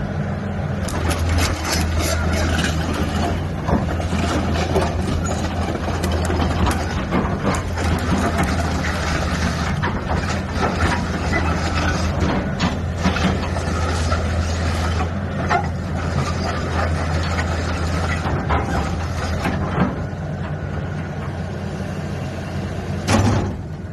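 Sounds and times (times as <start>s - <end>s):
excavator diesel engine running: 0.0s - 23.9s.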